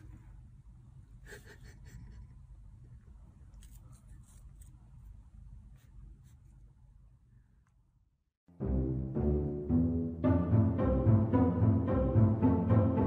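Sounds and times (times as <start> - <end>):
low room hum: 0.0 - 8.3.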